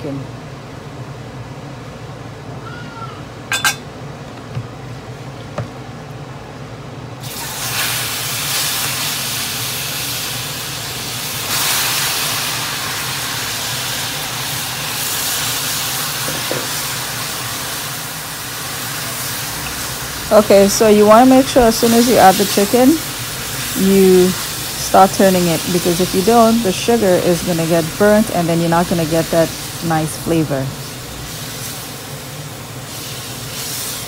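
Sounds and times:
chicken sizzling in a wok: 7.2 - 34.0.

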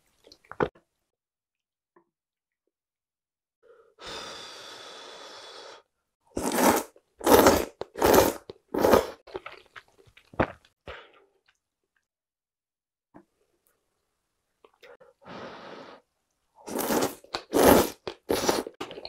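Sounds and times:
loud slurping: 6.4 - 9.2, 16.7 - 18.8
person blowing on food: 16.6 - 18.8.

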